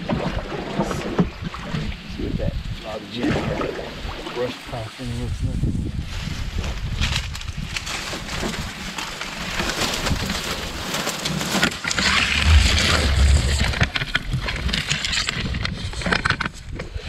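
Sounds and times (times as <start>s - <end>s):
reed stalks rustling against boat: 6.0s - 17.0s
low rumble: 11.9s - 15.7s.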